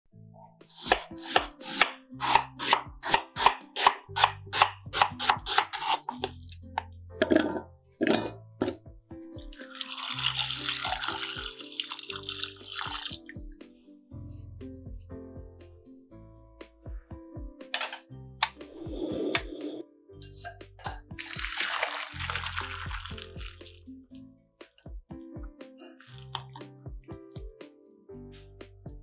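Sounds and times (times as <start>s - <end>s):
soft background music: 0.1s - 29.0s
knife chopping on wooden board: 0.8s - 6.3s
water pouring into pot: 9.4s - 13.3s, 21.2s - 23.8s.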